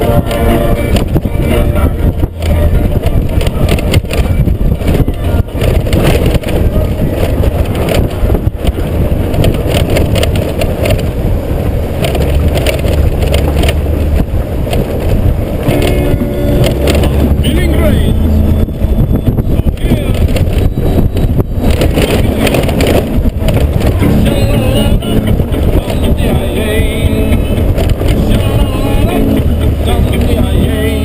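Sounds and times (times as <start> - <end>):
motorcycle engine rumble: 0.0 - 31.0
wind buffeting microphone: 0.0 - 31.0.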